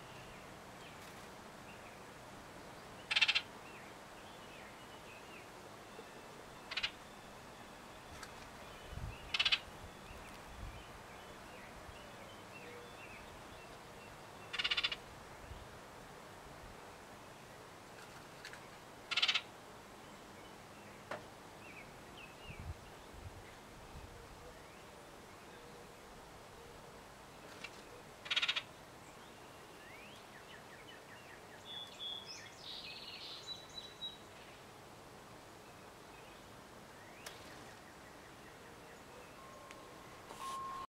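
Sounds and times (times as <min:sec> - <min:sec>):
bird rattle call: 0:03.1 - 0:03.4, 0:09.3 - 0:09.6, 0:14.5 - 0:15.0, 0:19.1 - 0:19.5, 0:28.2 - 0:28.6
faint bird chirps: 0:04.6 - 0:15.6, 0:37.0 - 0:40.9.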